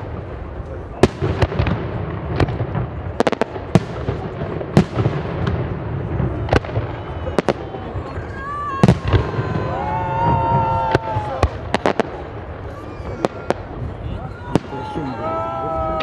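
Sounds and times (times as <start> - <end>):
firework bangs: 0.0 - 16.0.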